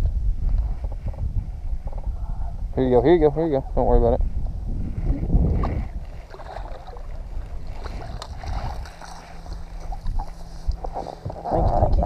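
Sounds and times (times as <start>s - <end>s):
faint steady hum: 0.0s - 12.0s
wind rumbling on microphone: 0.0s - 12.0s
water lapping at boat hull: 5.4s - 12.0s.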